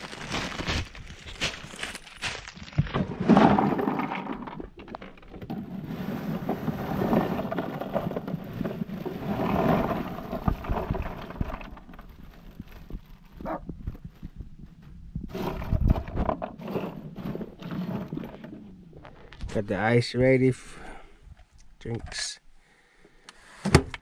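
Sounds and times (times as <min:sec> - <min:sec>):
plastic bag crinkling: 0:00.0 - 0:02.8
ice cubes clattering: 0:03.1 - 0:13.1.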